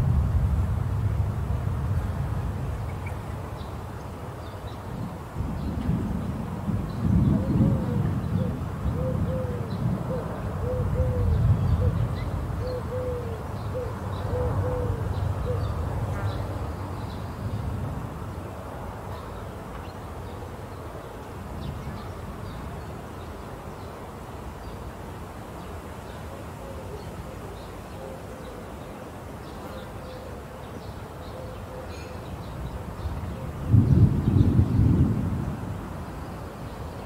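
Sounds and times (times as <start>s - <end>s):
distant thunder rumbling: 0.0s - 3.5s, 5.0s - 13.0s, 32.6s - 36.2s
bird hooting: 12.6s - 15.7s.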